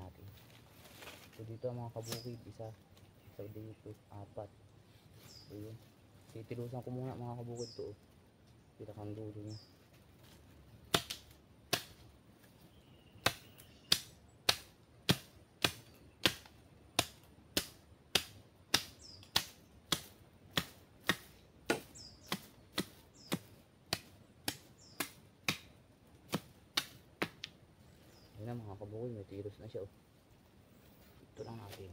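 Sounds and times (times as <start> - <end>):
blade chopping wooden stake: 10.9 - 12.0, 13.2 - 27.5.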